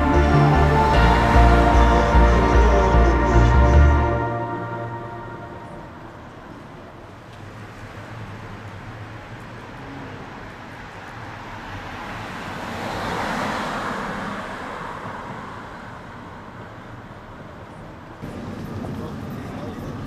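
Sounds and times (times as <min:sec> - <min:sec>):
vehicle passing close: 0:00.0 - 0:06.8
road traffic hum: 0:00.0 - 0:20.0.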